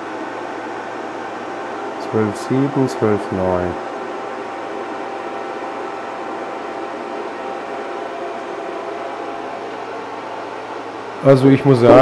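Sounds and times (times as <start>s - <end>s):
faint steady whine: 0.0s - 12.0s
inverter fan hum: 0.0s - 12.0s.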